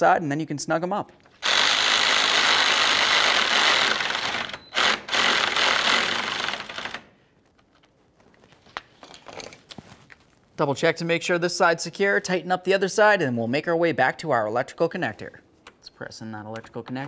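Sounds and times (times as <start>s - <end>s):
electric power tool running: 1.4s - 7.0s.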